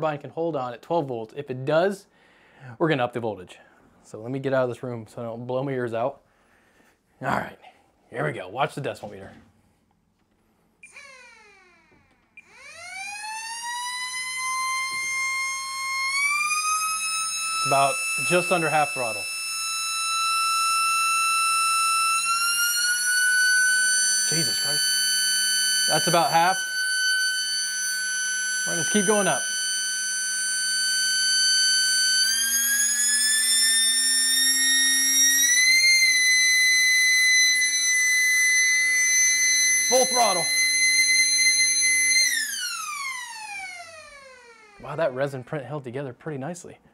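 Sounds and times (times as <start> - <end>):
siren winding up and down: 10.8 - 45.1.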